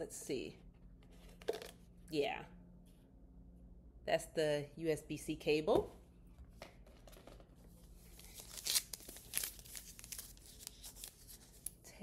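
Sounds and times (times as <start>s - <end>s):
packaging wrap crinkling: 8.0s - 11.8s.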